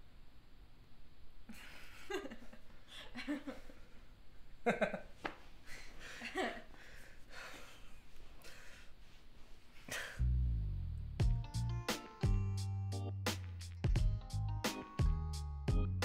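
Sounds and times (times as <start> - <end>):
man and woman laughing: 1.6 - 3.9, 4.6 - 5.2, 6.0 - 6.8.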